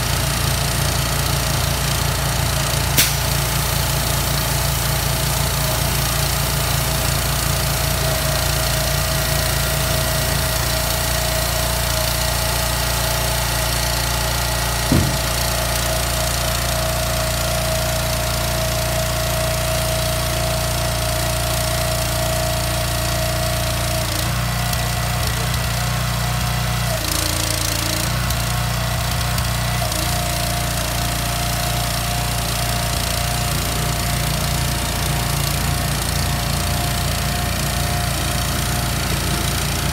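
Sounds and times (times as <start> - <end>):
truck engine rumble: 0.0 - 17.2, 27.1 - 39.9
hydraulic pump whine: 0.0 - 39.9
knock: 14.9 - 15.5.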